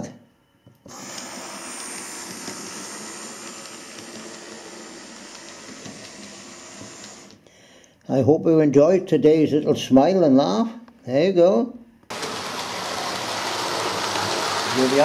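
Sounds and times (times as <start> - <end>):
model train motor whirring: 0.9 - 7.4, 12.1 - 15.0
wheels rattling on rails: 12.1 - 15.0.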